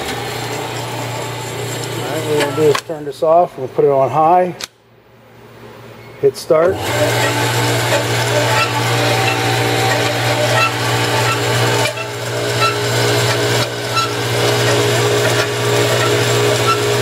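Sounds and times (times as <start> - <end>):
band saw motor hum: 0.0 - 3.1, 6.6 - 17.0.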